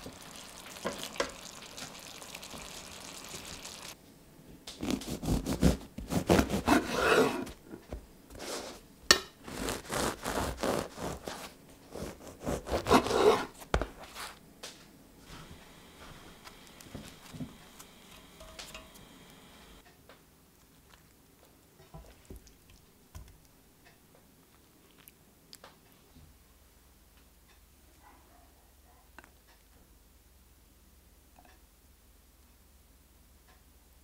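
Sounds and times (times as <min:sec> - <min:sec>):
stir fry sizzling in a pan: 0:00.0 - 0:04.0, 0:15.3 - 0:19.8
knife sawing through crusty bread: 0:04.8 - 0:07.5, 0:09.5 - 0:13.6.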